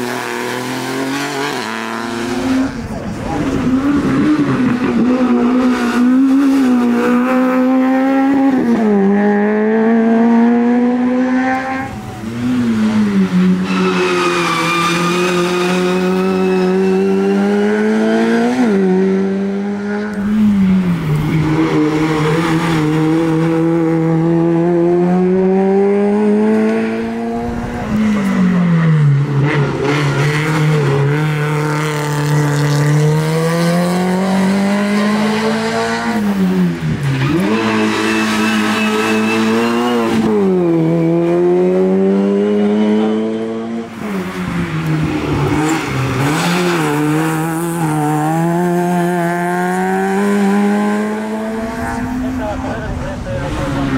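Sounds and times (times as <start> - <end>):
rally car engine revving: 0.0 - 53.9.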